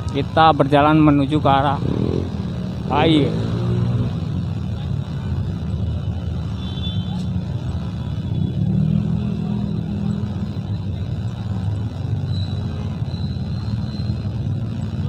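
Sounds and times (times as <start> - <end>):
traffic engines rumbling: 0.0 - 15.0.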